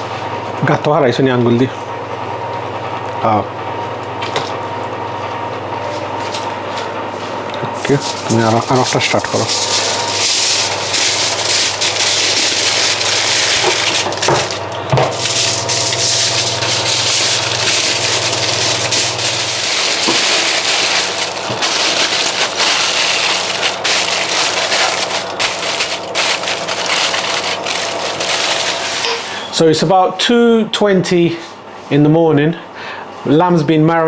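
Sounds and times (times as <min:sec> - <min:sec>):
aluminium foil crinkling: 0:07.8 - 0:29.4.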